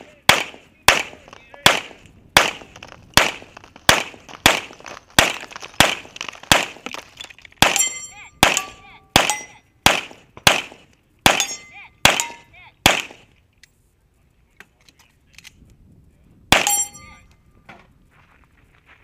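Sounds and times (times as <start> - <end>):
pistol shots: 0.0 - 6.8, 7.6 - 13.3, 16.5 - 16.8
steel targets ringing: 7.6 - 9.7, 11.3 - 12.5, 16.6 - 17.3.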